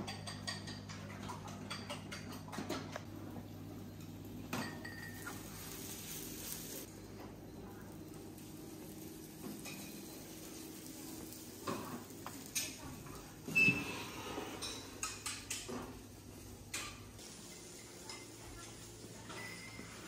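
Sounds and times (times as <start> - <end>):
dishes and cutlery clinking: 0.0 - 2.9, 3.9 - 6.0, 9.4 - 10.8, 11.6 - 16.1, 16.7 - 20.0.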